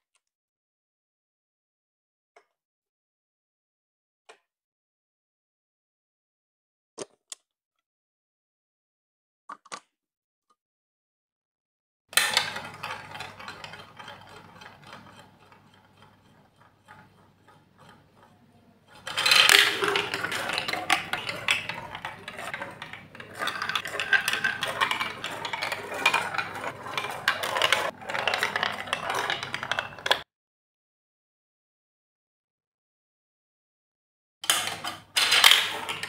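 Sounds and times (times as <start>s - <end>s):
ball rattling down plastic chutes: 12.2s - 30.2s, 34.4s - 36.0s
plastic ball rolling in funnel: 12.2s - 30.2s, 34.5s - 36.0s.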